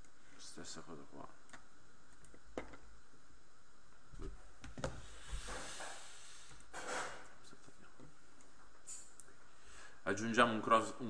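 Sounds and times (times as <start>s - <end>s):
steady low hiss: 0.0s - 11.0s.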